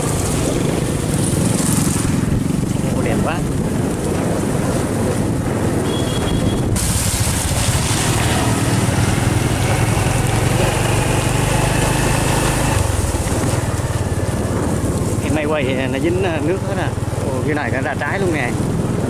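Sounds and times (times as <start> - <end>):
small motorbike engine running: 0.0 - 3.2, 5.4 - 17.4
wind and rain on microphone: 0.0 - 19.0.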